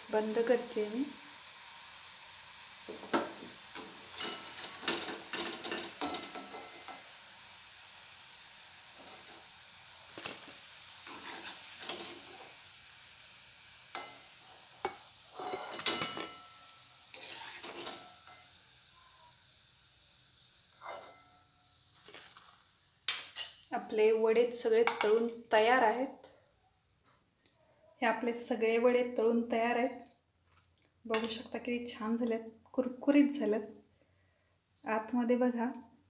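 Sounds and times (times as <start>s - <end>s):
food sizzling in hot oil: 0.0s - 27.0s
metal spoon scraping a pan: 3.0s - 7.1s, 11.0s - 12.6s, 13.9s - 18.6s, 20.8s - 21.3s, 22.0s - 23.6s.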